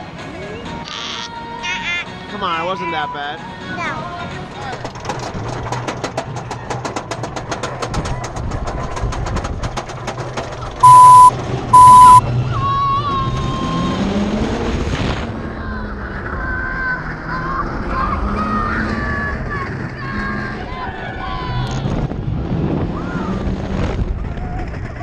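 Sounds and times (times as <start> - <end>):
warning signal beeps: 10.8 - 12.2.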